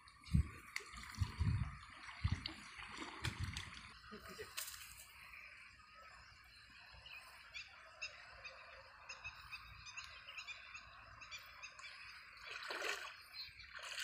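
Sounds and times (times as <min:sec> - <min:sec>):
splash of wading water: 0:02.0 - 0:05.0, 0:12.4 - 0:14.0.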